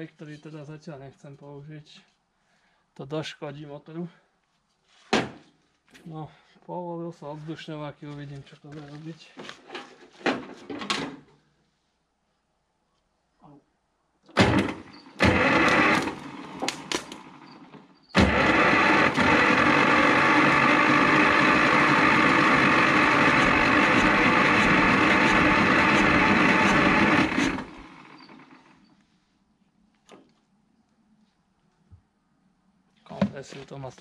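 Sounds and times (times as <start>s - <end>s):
engine cranking by starter: 14.3s - 28.9s.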